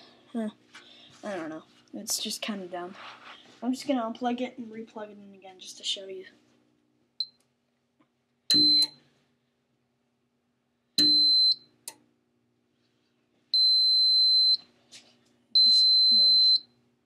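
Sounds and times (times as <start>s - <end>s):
high-pitched buzzer beep: 8.5s - 9.0s, 11.0s - 11.6s, 15.6s - 16.6s.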